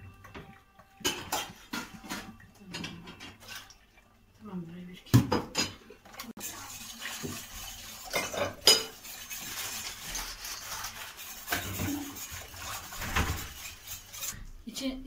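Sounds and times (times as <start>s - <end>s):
utensil clinking against pot: 0.2s - 3.7s, 6.4s - 14.4s
utensil scraping metal pot: 1.0s - 3.7s, 5.6s - 14.4s.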